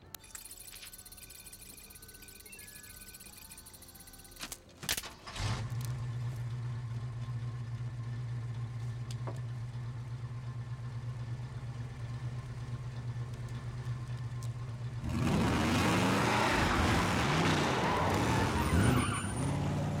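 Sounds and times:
tyres spinning: 0.3 - 20.0
truck engine idling and revving: 4.4 - 20.0.

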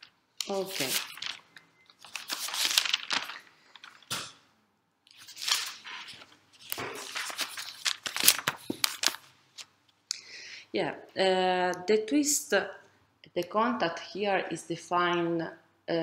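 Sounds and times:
rustling and crinkling: 0.0 - 4.4, 5.1 - 9.7.

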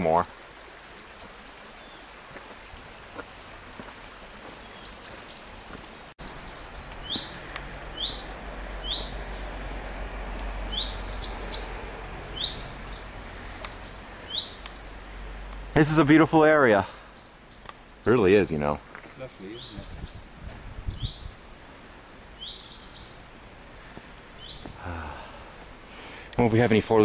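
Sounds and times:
faint outdoor hiss: 0.0 - 27.0
small bird chirping: 6.2 - 9.6, 10.7 - 15.9, 19.1 - 21.6, 22.3 - 23.4, 24.4 - 24.8.

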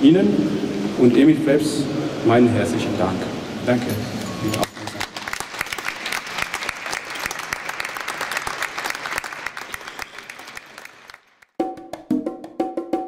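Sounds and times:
audience applauding: 4.4 - 11.6
music with wood-block percussion: 11.6 - 13.0.

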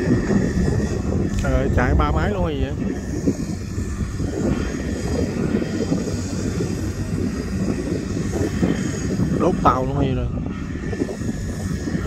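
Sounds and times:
diesel engines running hard: 0.0 - 12.0.

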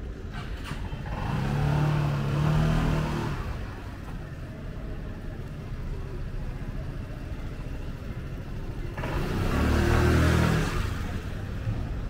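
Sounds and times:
street background noise: 0.0 - 12.0
vehicle driving past: 8.9 - 11.4.

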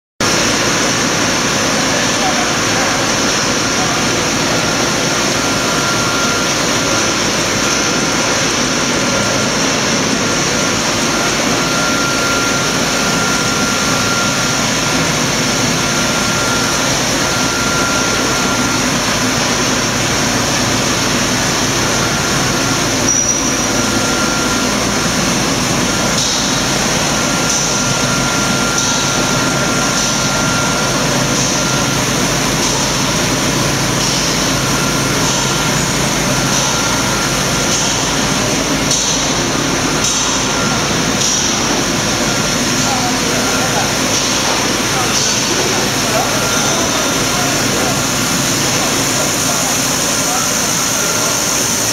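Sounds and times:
steady machine noise: 0.2 - 51.9
faint high whine: 1.6 - 51.9.

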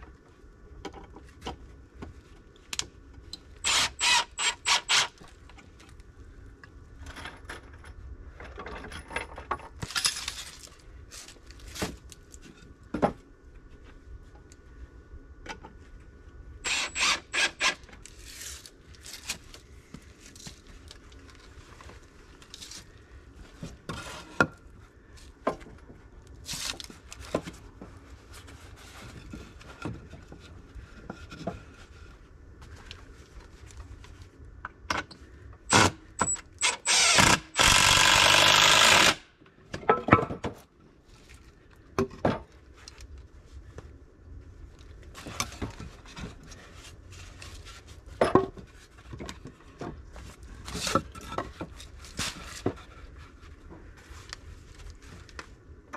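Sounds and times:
cordless drill driving a screw: 3.6 - 5.2, 16.7 - 17.8, 35.7 - 39.3
clicks and knocks of lumber: 39.6 - 40.7, 42.0 - 42.6.

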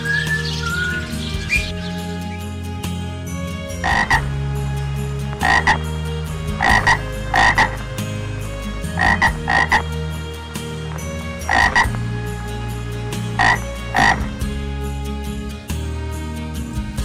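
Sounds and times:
animal double calls: 3.8 - 4.3, 5.4 - 5.9, 6.6 - 7.9, 8.9 - 10.0, 11.4 - 12.0, 13.4 - 14.3.

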